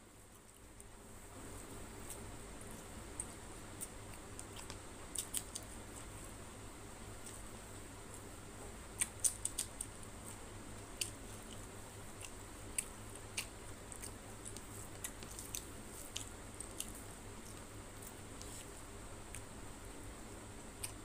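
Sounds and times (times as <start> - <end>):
wet chewing clicks and smacks: 3.2 - 6.1, 9.0 - 10.0, 10.8 - 18.2.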